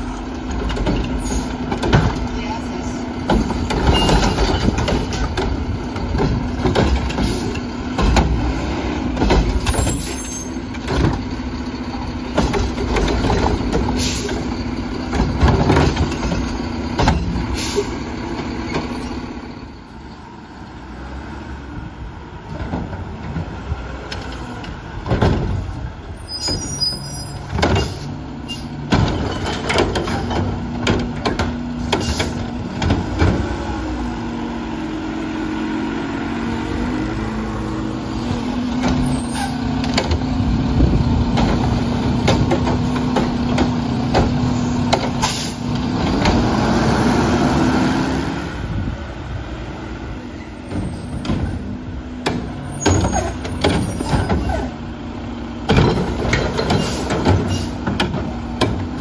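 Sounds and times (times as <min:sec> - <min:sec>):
diesel engine drone: 0:00.0 - 0:59.0
metal clanks and knocks: 0:00.4 - 0:02.4, 0:03.2 - 0:17.5, 0:27.4 - 0:33.6, 0:38.6 - 0:46.5, 0:55.6 - 0:59.0.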